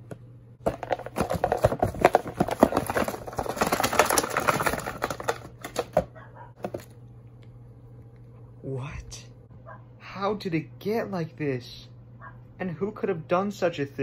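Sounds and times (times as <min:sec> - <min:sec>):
cardboard box rustling and scraping: 0:00.6 - 0:06.0.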